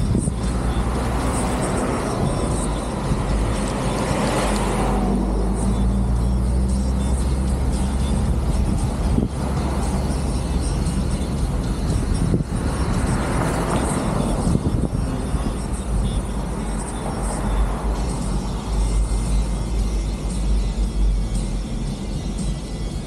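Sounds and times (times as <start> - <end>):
rushing wind: 0.0 - 5.6, 8.2 - 18.9
car engine and road noise: 0.0 - 23.0.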